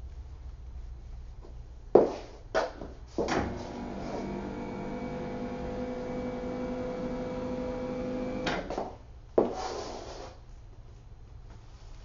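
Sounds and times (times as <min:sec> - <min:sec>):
electric table motor humming: 0:03.6 - 0:08.5.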